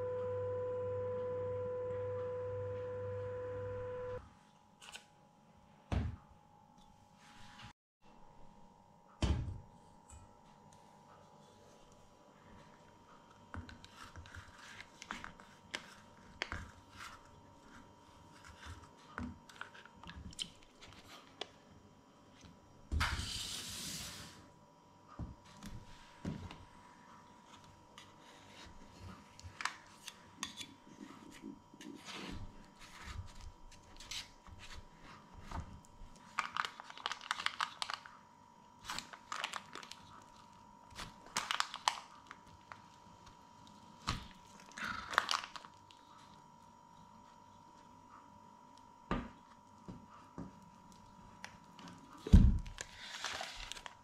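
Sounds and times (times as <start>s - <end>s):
faint high hum: 0.0s - 54.0s
parchment paper rustling and tearing: 13.8s - 21.3s, 36.2s - 38.1s, 38.8s - 42.9s, 44.4s - 46.3s, 52.7s - 54.0s.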